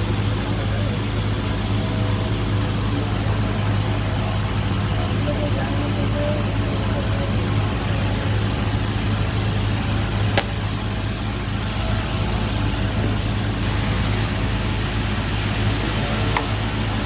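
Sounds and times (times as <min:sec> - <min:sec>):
welding machine hum: 0:13.6 - 0:17.0.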